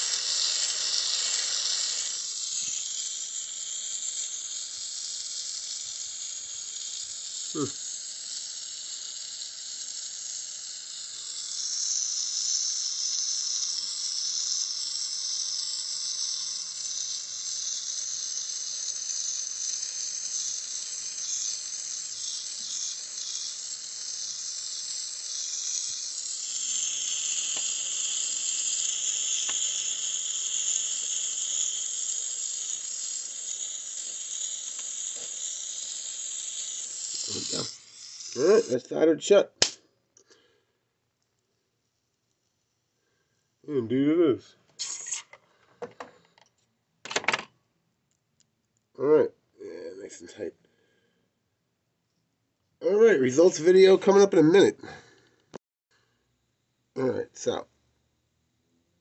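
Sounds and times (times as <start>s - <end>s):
gas torch flame hissing: 0.0s - 39.0s, 44.8s - 46.0s.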